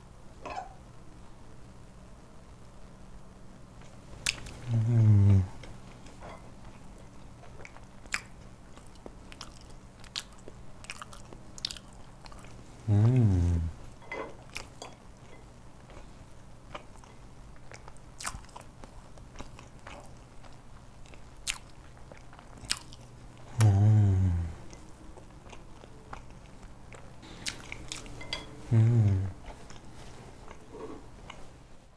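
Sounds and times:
person chewing cake: 0:04.2 - 0:31.6
person humming mmm: 0:04.6 - 0:05.7, 0:12.8 - 0:13.8, 0:23.4 - 0:24.8, 0:28.5 - 0:29.6.

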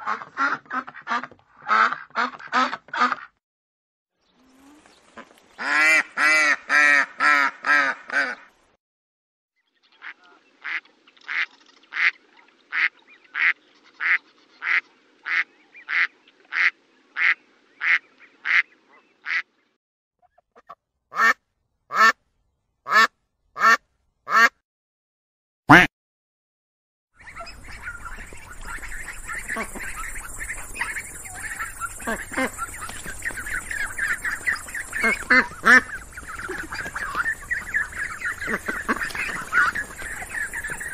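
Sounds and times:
ducks quacking: 0:00.0 - 0:03.4, 0:04.5 - 0:08.5, 0:10.0 - 0:19.5, 0:27.2 - 0:40.9.

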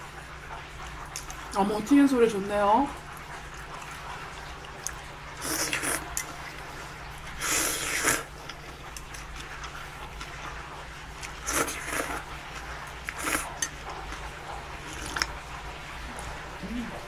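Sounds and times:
slurping noodles: 0:04.8 - 0:10.1, 0:11.2 - 0:15.4.

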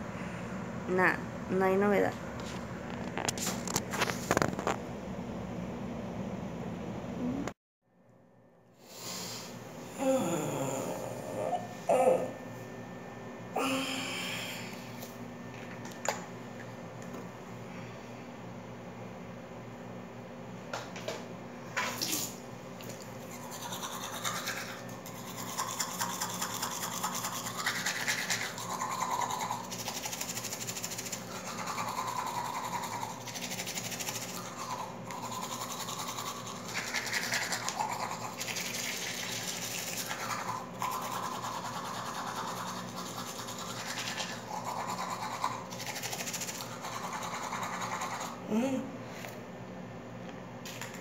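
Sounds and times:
toothbrush scrubbing teeth: 0:22.8 - 0:48.4.

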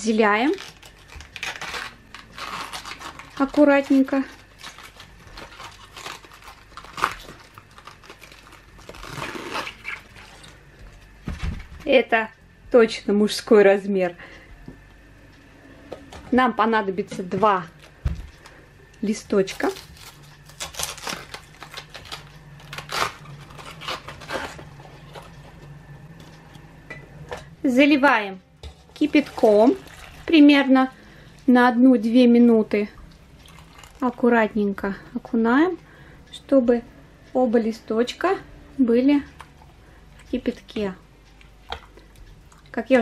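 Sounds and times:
cabbage leaf crackling and tearing: 0:00.3 - 0:10.5, 0:19.5 - 0:25.4.

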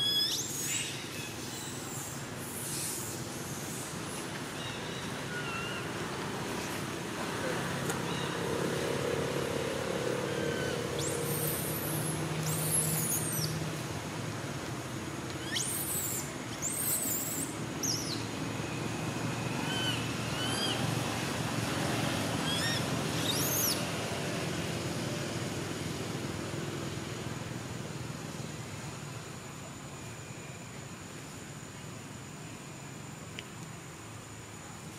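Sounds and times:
birds chirping: 0:10.0 - 0:13.6.

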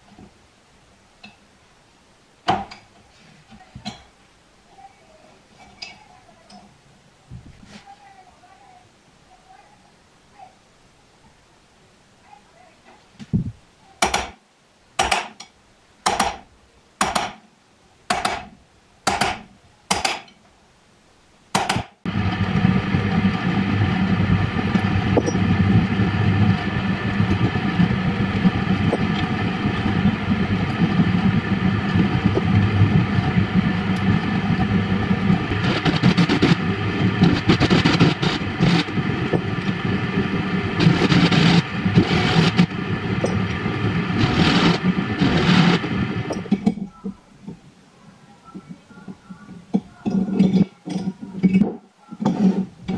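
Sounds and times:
drill press motor running: 0:22.1 - 0:46.5.

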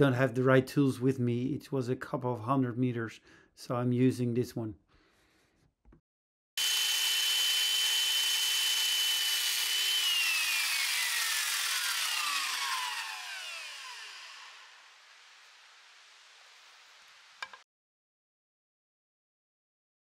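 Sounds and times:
electric saw motor whine: 0:06.6 - 0:16.2.

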